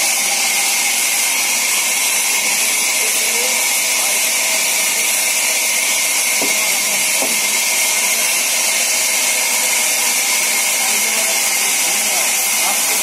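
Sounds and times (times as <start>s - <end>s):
band saw cutting log: 0.0s - 13.0s.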